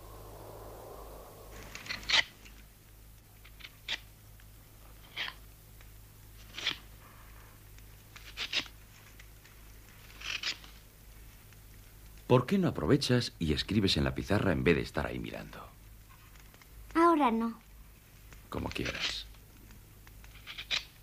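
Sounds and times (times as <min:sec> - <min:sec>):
knife shaving wood: 0:06.4 - 0:07.0, 0:07.7 - 0:10.8, 0:18.3 - 0:21.0.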